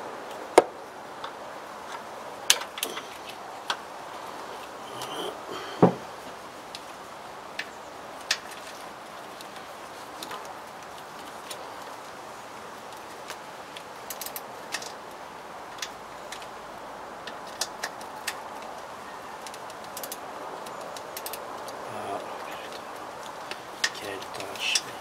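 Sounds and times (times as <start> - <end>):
steady background hiss: 0.0 - 25.0
ratchet and hand tools clicking: 19.4 - 21.8.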